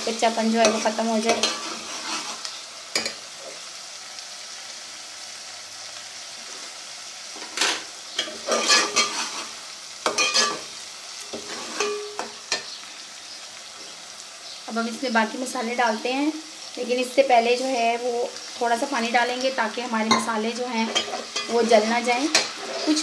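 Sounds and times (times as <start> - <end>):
paste sizzling in hot oil: 0.0 - 23.0
metal spoon scraping pot: 0.6 - 2.4, 8.2 - 9.5, 10.1 - 10.6, 11.4 - 12.2, 22.2 - 23.0.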